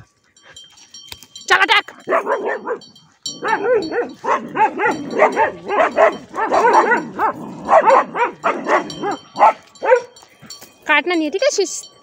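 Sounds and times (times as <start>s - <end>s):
dogs barking excitedly: 1.9s - 10.5s.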